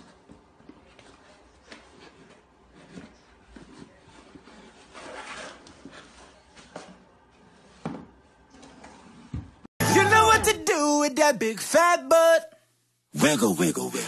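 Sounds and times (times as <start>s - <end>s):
cardboard box scraping on floor: 1.8s - 9.5s.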